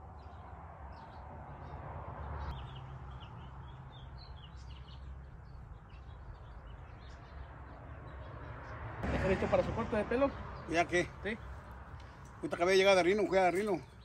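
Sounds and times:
small birds chirping: 0.0 - 9.0, 9.9 - 14.0.

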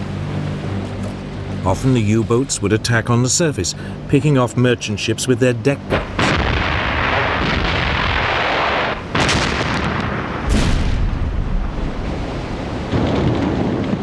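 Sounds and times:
sharp bangs: 5.9 - 11.6
continuous explosions: 5.9 - 12.2, 12.8 - 14.0.

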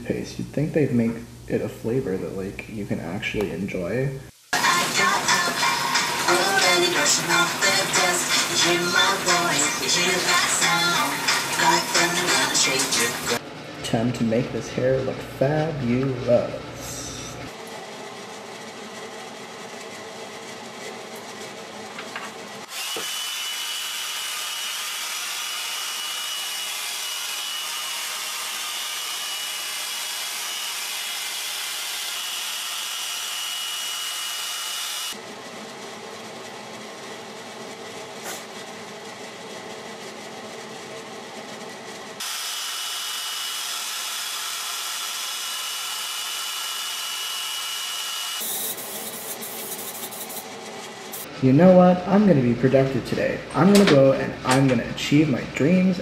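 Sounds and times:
hair dryer blowing: 4.5 - 13.4, 22.6 - 39.3, 42.2 - 50.5.

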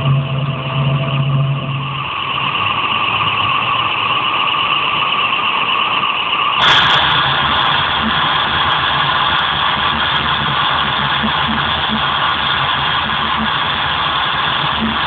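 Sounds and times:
hissy electronic drone: 0.0 - 15.0
low hum: 0.0 - 15.0
burst of hiss: 6.6 - 15.0.

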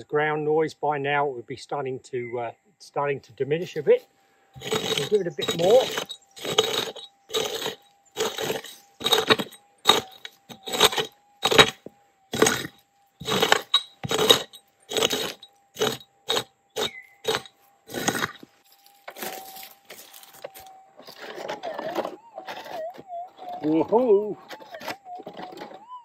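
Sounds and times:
metal detector threshold hum: 3.5 - 25.2
pick striking stony soil: 4.6 - 21.6.

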